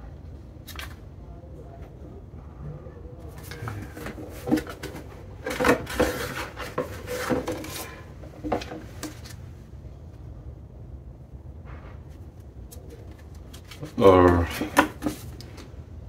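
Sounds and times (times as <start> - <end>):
paper rustling: 3.3 - 9.4, 12.7 - 15.6.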